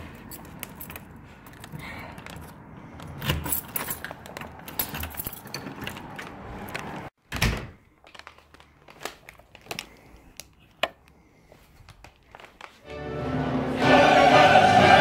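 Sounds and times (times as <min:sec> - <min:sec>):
keys rattling: 0:00.0 - 0:06.4.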